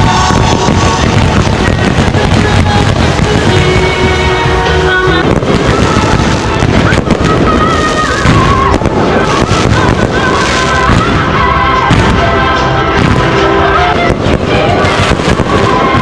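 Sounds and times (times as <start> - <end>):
fireworks bangs and crackles: 0.0 - 16.0
loud music with melody: 0.0 - 16.0.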